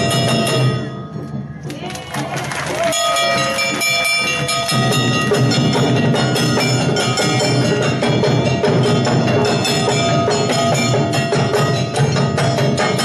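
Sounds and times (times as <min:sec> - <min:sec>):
gongs and drums: 0:00.0 - 0:13.0
high melody notes: 0:02.9 - 0:13.0
low drums: 0:04.3 - 0:13.0.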